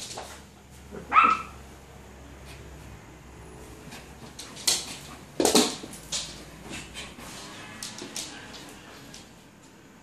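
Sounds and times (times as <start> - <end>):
dog yelping: 0.9 - 1.6.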